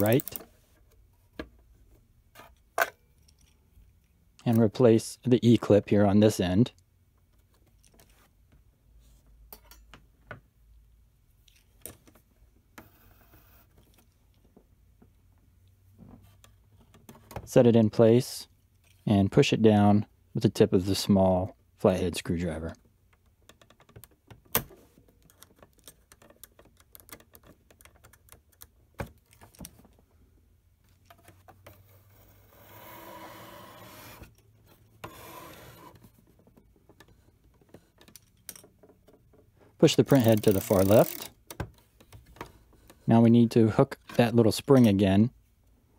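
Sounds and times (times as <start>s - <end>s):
screwdriver clicking on metal: 40.0s - 41.4s.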